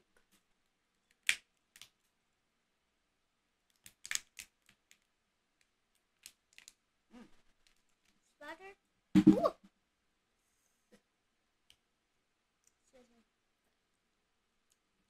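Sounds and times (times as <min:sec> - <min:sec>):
lobster shell cracking: 0:03.8 - 0:04.5.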